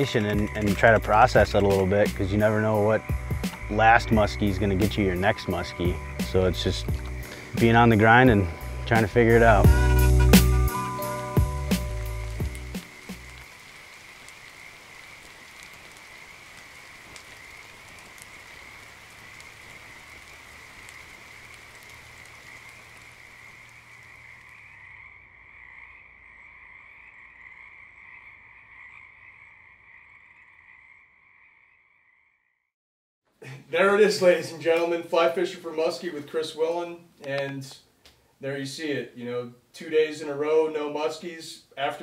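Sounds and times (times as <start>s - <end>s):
frogs calling in chorus: 12.8s - 32.4s.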